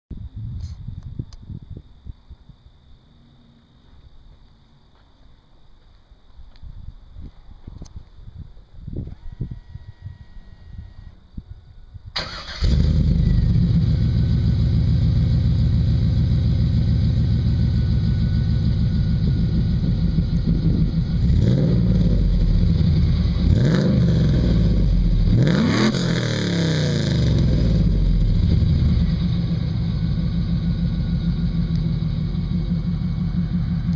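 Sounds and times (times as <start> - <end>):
car engine starting and idling: 12.1 - 33.9
engine revving: 12.2 - 30.9.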